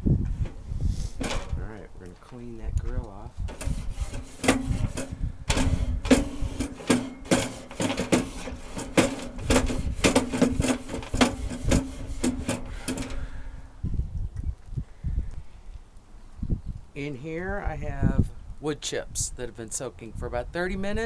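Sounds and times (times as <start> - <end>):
wire brush scrubbing metal grate: 3.4 - 13.3.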